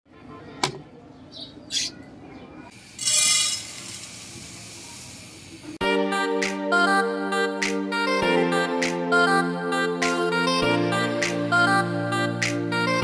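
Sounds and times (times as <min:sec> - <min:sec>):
lentils poured into metal pan: 0:02.9 - 0:04.8.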